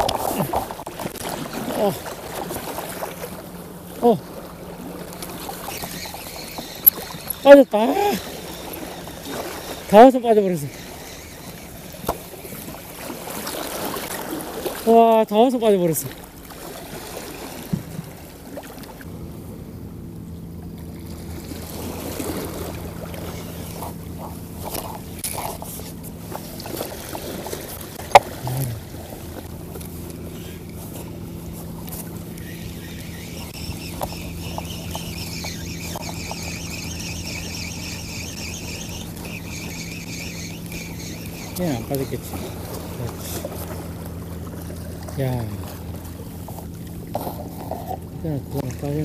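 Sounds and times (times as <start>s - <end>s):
boat engine humming: 0.0s - 49.0s
high-pitched whine: 30.1s - 42.5s.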